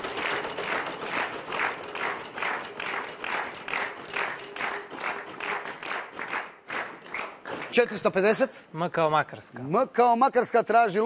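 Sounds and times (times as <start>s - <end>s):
prize wheel flapper clicking: 0.0s - 5.6s.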